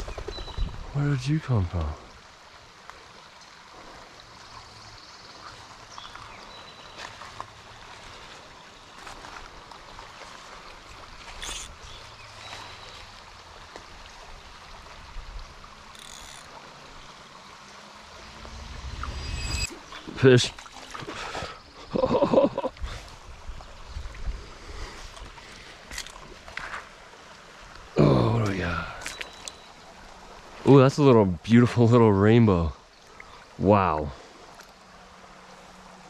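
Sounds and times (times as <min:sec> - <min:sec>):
creek babbling: 0:00.0 - 0:36.0
brief high tones: 0:18.2 - 0:20.0.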